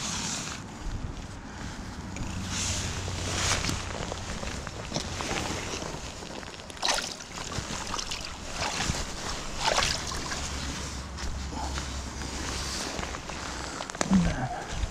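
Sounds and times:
river water sloshing and splashing: 0:02.5 - 0:11.1.

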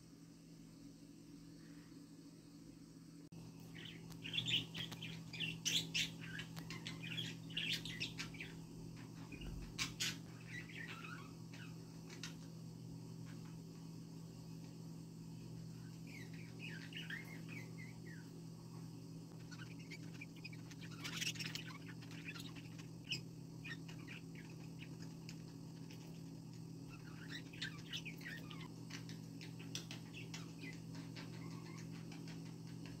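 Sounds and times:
steady low hum: 0:00.0 - 0:33.0
budgerigars chattering: 0:19.4 - 0:26.0, 0:26.9 - 0:28.7.

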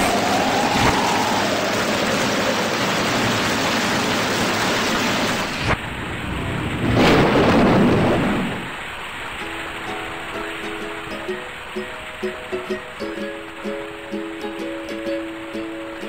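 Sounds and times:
thunder crack and rumble: 0:00.0 - 0:09.0
heavy rain: 0:00.0 - 0:16.0.

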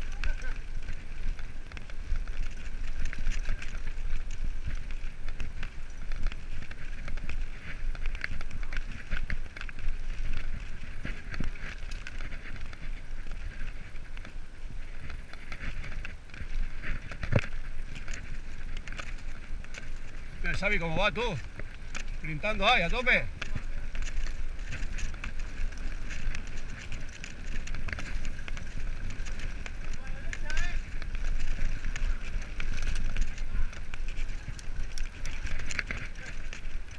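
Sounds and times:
bike clattering and rattling: 0:00.0 - 0:36.9
wind buffeting microphone: 0:00.0 - 0:36.9.

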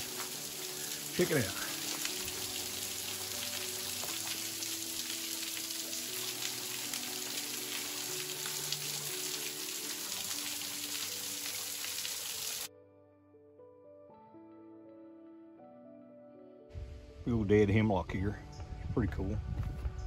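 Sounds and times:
waterfall splashing over rocks: 0:00.0 - 0:12.7.

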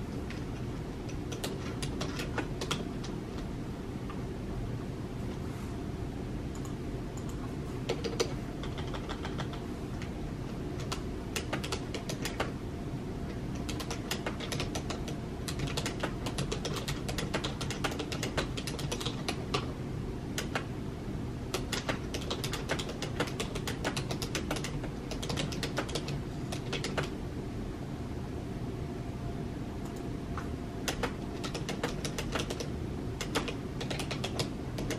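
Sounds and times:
low background hum: 0:00.0 - 0:34.9
computer keyboard typing: 0:00.2 - 0:03.5, 0:06.5 - 0:10.1, 0:10.8 - 0:12.6, 0:13.3 - 0:19.7, 0:20.3 - 0:20.7, 0:21.5 - 0:27.2, 0:29.8 - 0:34.9.

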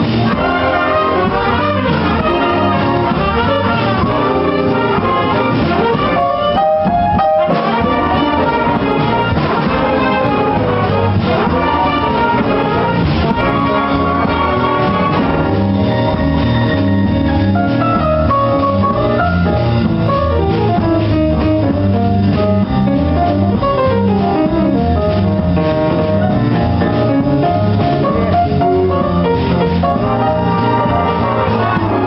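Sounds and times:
jazz big band playing: 0:00.0 - 0:32.0.

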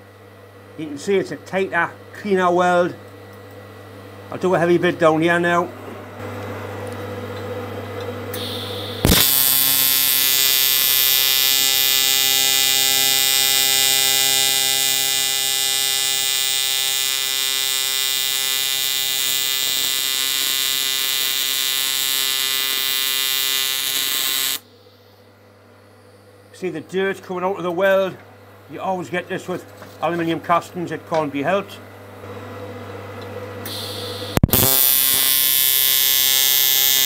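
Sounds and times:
welder low hum: 0:00.8 - 0:37.0
welding arc crack and buzz: 0:08.3 - 0:24.7, 0:33.6 - 0:37.0.

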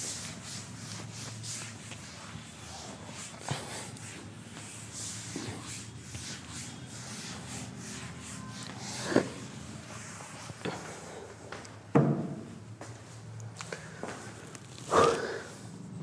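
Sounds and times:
eraser wiping whiteboard: 0:00.0 - 0:11.0
thump: 0:12.0 - 0:12.4.

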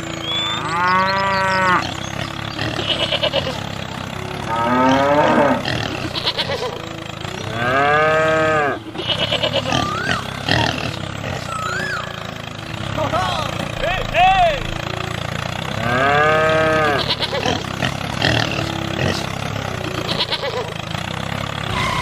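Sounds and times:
cow mooing: 0:00.2 - 0:03.6, 0:04.4 - 0:06.8, 0:07.5 - 0:12.2, 0:15.8 - 0:19.3
wavering animal call: 0:00.2 - 0:03.7, 0:07.5 - 0:12.4, 0:21.6 - 0:22.0.

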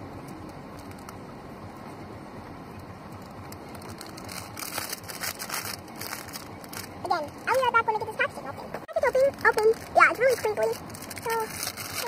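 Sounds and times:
plastic wrapper crinkling: 0:03.2 - 0:07.6, 0:09.0 - 0:12.0.

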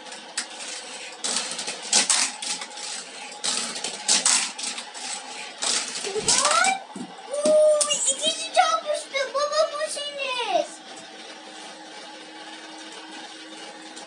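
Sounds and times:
toy cars rattling on plastic track: 0:00.1 - 0:06.8, 0:07.4 - 0:10.7.

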